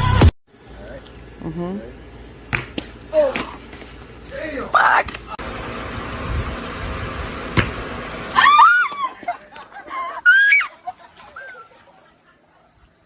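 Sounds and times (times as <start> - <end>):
high-pitched screams: 8.3 - 9.3, 10.1 - 10.8.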